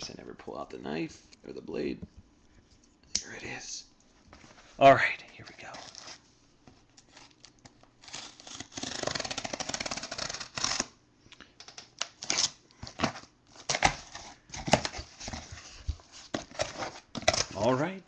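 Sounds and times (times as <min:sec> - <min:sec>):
blade slitting packing tape: 0:08.0 - 0:10.9.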